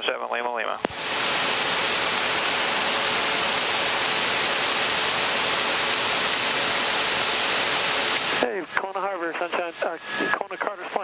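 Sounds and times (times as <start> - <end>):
jet cockpit rushing noise: 0.8 - 11.0.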